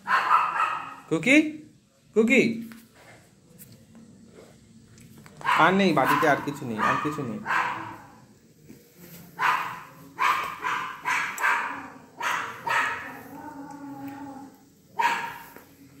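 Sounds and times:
dog barking: 0.0 - 1.1, 5.4 - 8.2, 9.4 - 13.3, 14.9 - 15.6.

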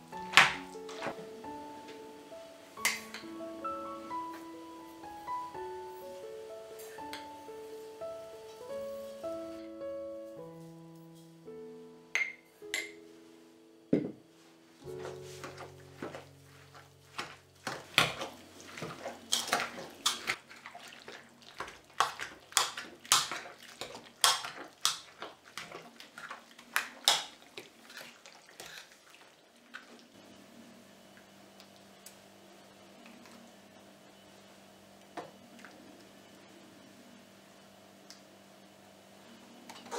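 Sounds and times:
faint steady hum: 0.0 - 28.0, 29.1 - 39.9
masher squelching raspberries: 14.8 - 30.2.

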